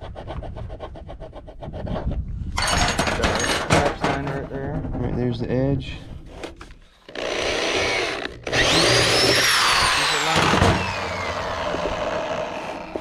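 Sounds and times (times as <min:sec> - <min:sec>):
power drill boring through plastic: 0:07.0 - 0:13.0.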